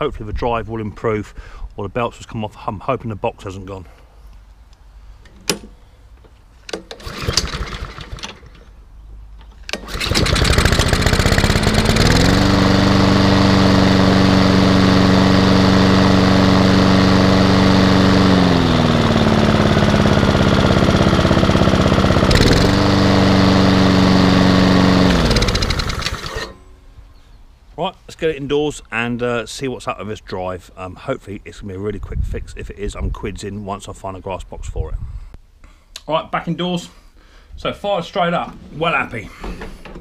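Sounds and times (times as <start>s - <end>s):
lawnmower engine running: 6.8s - 8.7s, 9.7s - 26.8s.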